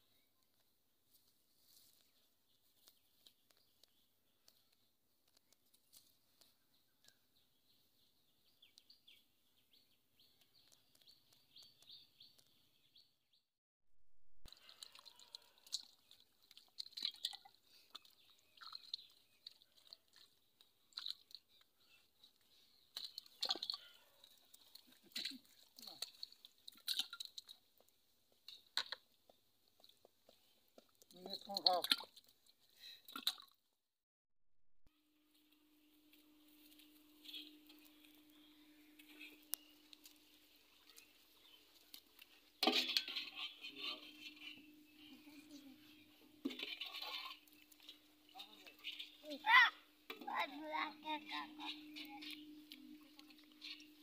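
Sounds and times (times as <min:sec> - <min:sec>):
fish splashing in shallow water: 0:14.5 - 0:21.6, 0:22.9 - 0:27.7.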